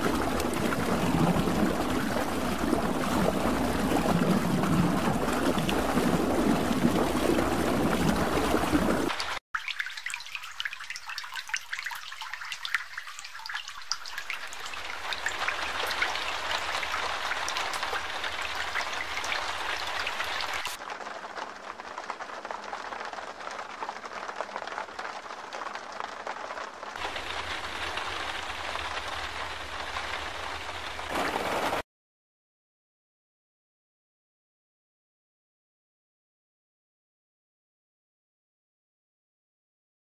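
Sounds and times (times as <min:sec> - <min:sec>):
heavy rain on umbrellas: 0:00.0 - 0:09.4, 0:14.0 - 0:31.8.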